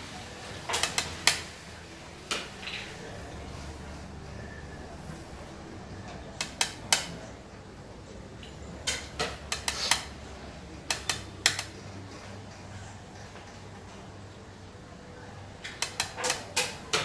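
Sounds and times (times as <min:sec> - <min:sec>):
game pieces clicking together: 0:08.9 - 0:10.1, 0:10.9 - 0:11.7, 0:15.7 - 0:16.8.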